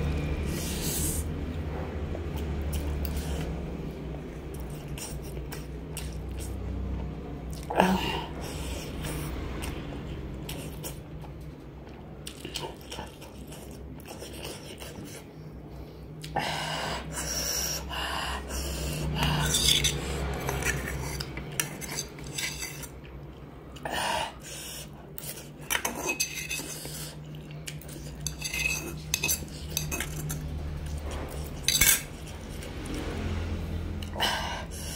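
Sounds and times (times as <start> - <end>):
fork scraping aluminium pan: 28.2 - 30.3.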